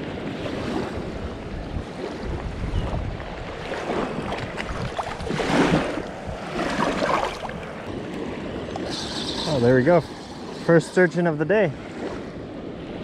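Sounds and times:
river water splashing: 0.0s - 12.6s
wind on microphone: 0.0s - 13.0s
lapping water: 3.6s - 11.2s.

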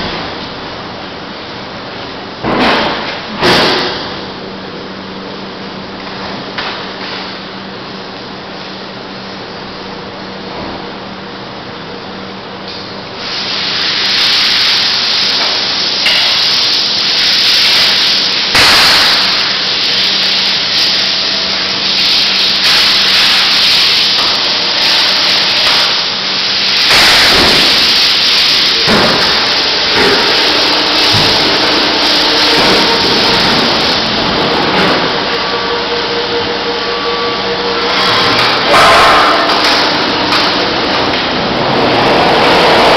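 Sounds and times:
electric motor hum: 19.2s - 42.9s.

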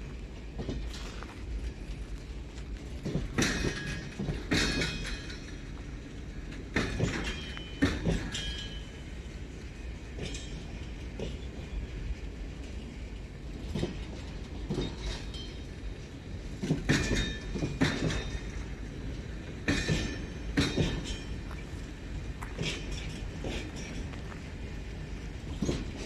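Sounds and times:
wheels clacking over rail joint: 0.2s - 26.0s
freight wagons rolling: 10.1s - 26.0s.

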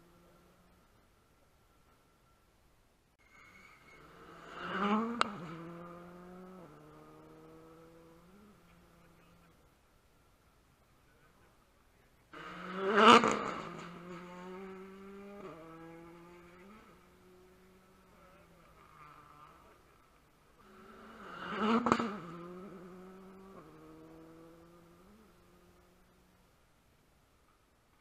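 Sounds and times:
rally cars passing at speed: 3.2s - 9.6s, 12.3s - 26.4s.

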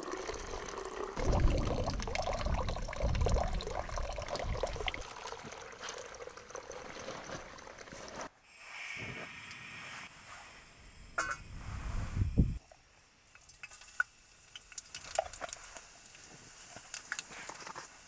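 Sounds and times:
water pouring and trickling: 0.0s - 8.3s, 13.4s - 17.3s.

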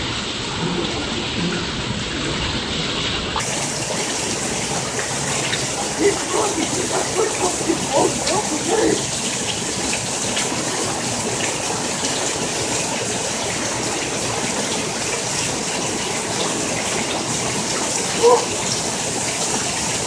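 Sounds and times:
heavy rain pouring: 0.0s - 20.0s
person shouting: 5.8s - 9.1s, 18.2s - 18.6s.

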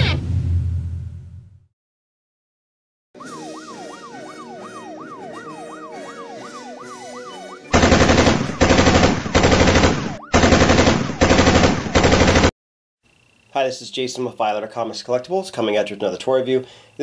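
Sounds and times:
siren wailing: 3.2s - 11.2s
machine-gun fire: 7.7s - 12.5s.

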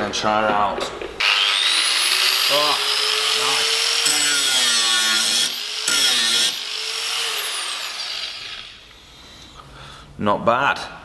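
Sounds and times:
angle grinder whining: 1.2s - 8.9s.

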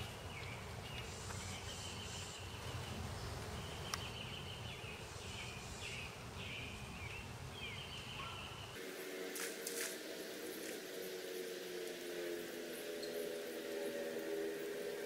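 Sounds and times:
high chirping calls: 0.0s - 14.8s.

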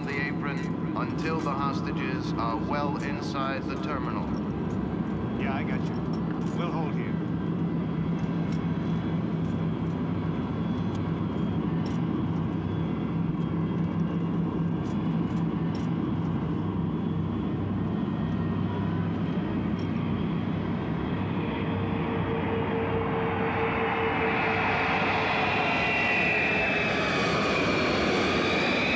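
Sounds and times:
jet engines rumbling: 0.0s - 28.9s
steady high tone: 20.7s - 28.9s.

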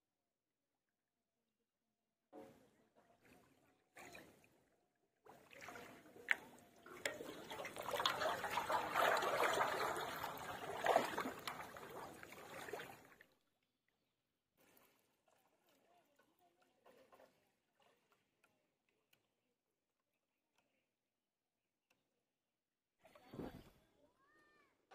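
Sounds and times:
water sloshing and splashing: 3.2s - 13.6s, 14.6s - 19.2s.

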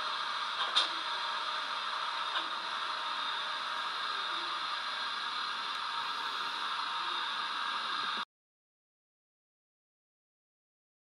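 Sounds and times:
hiss of simulated steam: 0.0s - 8.2s.

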